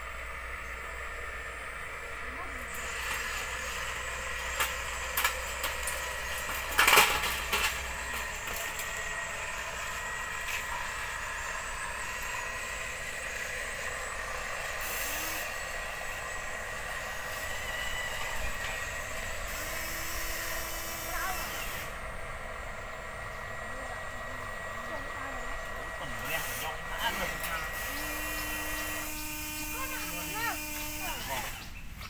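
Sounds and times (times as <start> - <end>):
small electric motor whining: 0.0 - 32.0
hiss: 13.6 - 16.2.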